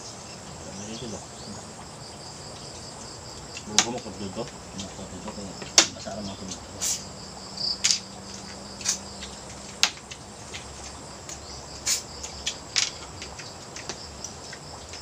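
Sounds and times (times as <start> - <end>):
crickets chirring: 0.0 - 15.0
sharp clicks and knocks: 3.5 - 6.7.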